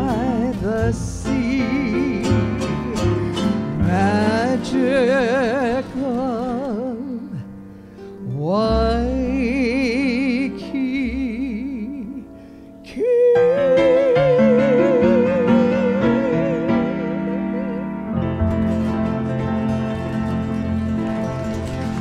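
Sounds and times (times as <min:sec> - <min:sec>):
woman singing with vibrato: 0:00.0 - 0:07.5, 0:08.2 - 0:17.8
grand piano accompaniment: 0:00.0 - 0:22.0.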